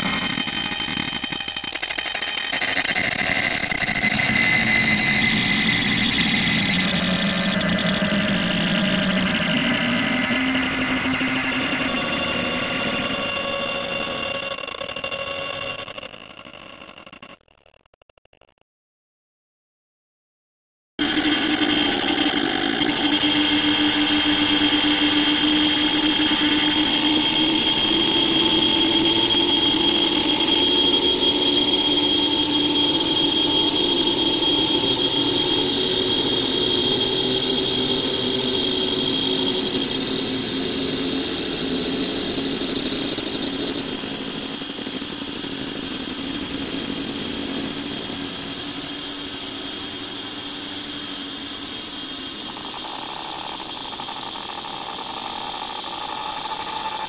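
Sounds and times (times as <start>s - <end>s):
low electronic drone hum: 2.4s - 15.2s.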